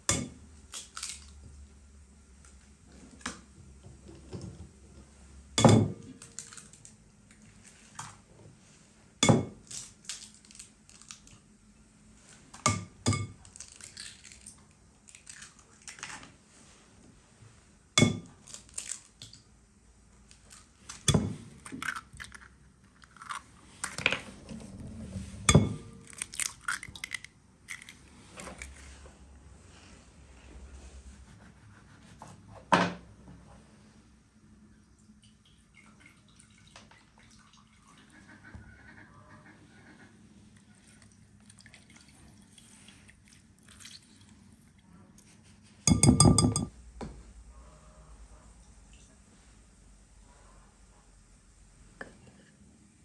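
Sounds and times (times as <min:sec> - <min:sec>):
eggshell crackling: 0:21.6 - 0:24.0, 0:26.0 - 0:28.7
eggs tapped on glass bowl: 0:45.9 - 0:46.7.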